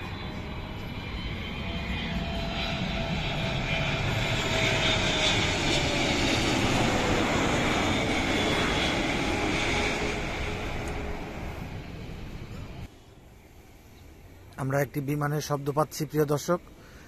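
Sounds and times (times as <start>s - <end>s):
whining engine tone: 0.0s - 12.9s
jet engines of airliner: 0.0s - 17.0s.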